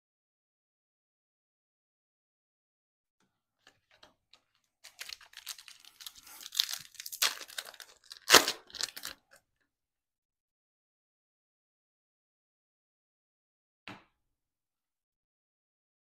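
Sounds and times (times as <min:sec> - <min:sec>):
foil wrapper tearing: 0:04.8 - 0:09.3.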